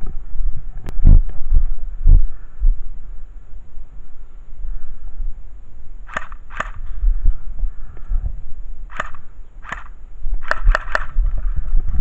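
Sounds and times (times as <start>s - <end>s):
wind rumble on microphone: 0.0s - 12.0s
airsoft pistol shots: 6.1s - 6.8s, 8.9s - 11.2s.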